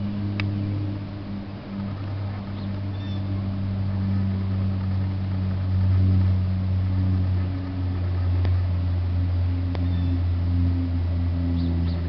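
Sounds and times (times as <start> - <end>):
motor humming: 0.0 - 12.0
faint bird chirps: 1.6 - 3.4, 9.8 - 10.3.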